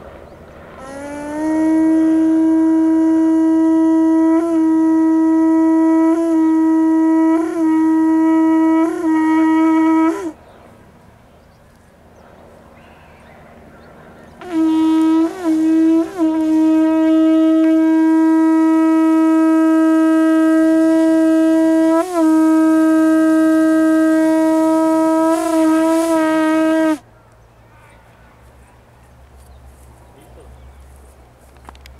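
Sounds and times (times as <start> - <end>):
conch shell trumpet note: 0.8 - 10.4, 14.4 - 27.0.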